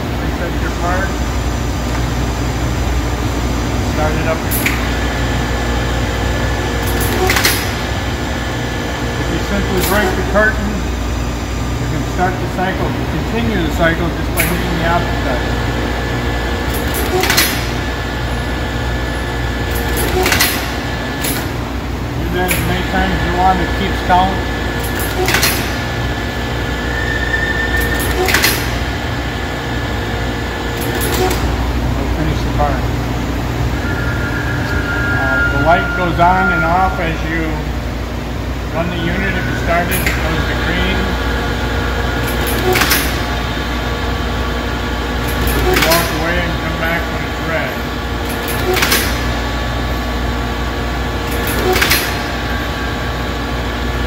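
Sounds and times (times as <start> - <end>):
pneumatic drill humming: 4.3 - 11.0, 14.2 - 31.9, 39.1 - 46.3, 48.1 - 54.0.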